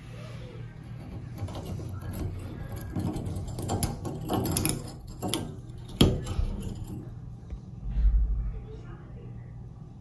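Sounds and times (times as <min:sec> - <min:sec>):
steady low hum: 0:00.0 - 0:10.0
small metal clicks and scrapes: 0:00.7 - 0:07.2.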